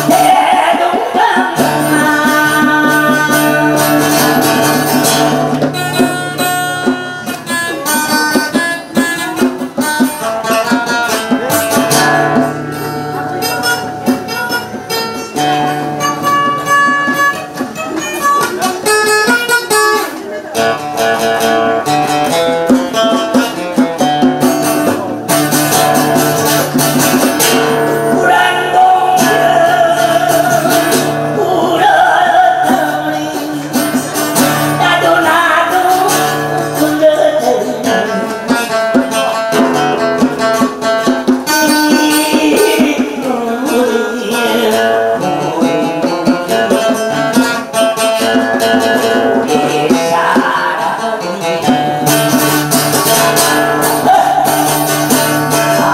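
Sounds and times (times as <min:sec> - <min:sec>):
person singing: 0:00.0 - 0:06.6, 0:27.4 - 0:39.6, 0:41.5 - 0:47.6, 0:48.3 - 0:55.9
acoustic guitar: 0:00.0 - 0:55.9
djembe hand drum: 0:00.0 - 0:55.9.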